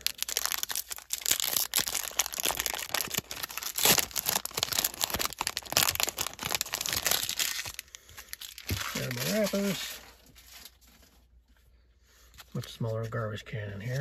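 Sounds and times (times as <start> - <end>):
foil wrapper tearing and crinkling: 0.0 - 10.8.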